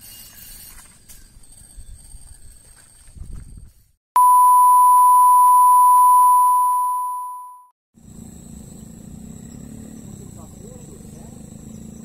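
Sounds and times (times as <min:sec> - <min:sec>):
outdoor background noise: 0:00.0 - 0:04.0, 0:08.0 - 0:12.0
electronic beep tone: 0:04.2 - 0:07.7.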